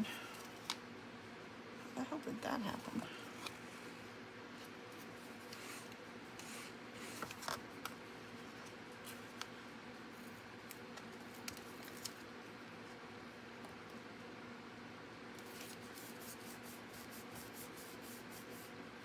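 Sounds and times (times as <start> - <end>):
low room hum: 0.0 - 19.0
paper card rustling: 10.2 - 12.3.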